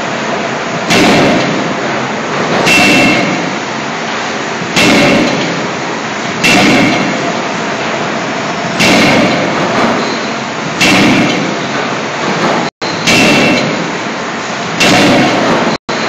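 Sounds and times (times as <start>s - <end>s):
loud machinery noise: 0.0s - 16.0s
forging hammer blows with ring: 2.6s - 3.6s, 4.8s - 5.8s, 6.4s - 7.4s, 8.8s - 11.7s, 12.8s - 13.9s.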